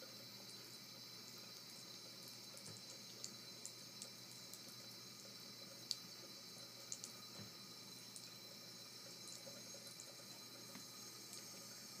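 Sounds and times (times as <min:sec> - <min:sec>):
tap water trickling into sink: 0:01.3 - 0:12.0
small ticks: 0:06.9 - 0:07.2.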